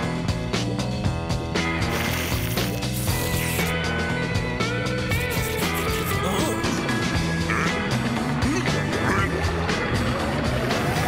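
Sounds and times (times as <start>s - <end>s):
steady drum beat: 5.1s - 6.5s.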